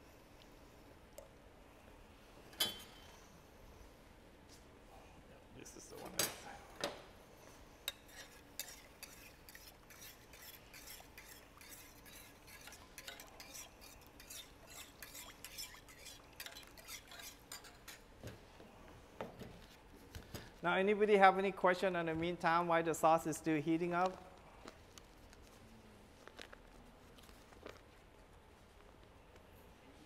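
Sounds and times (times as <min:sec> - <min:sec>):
spoon scraping metal pot: 0:07.8 - 0:18.1.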